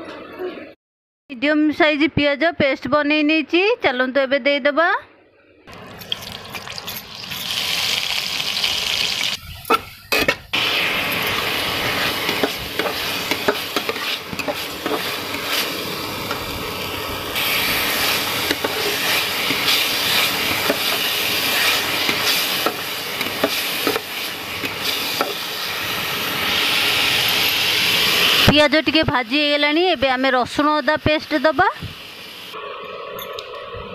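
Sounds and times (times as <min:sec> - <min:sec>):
paste sizzling in hot oil: 0:05.8 - 0:09.4, 0:10.5 - 0:28.6
spatula scraping a metal pan: 0:11.9 - 0:15.7.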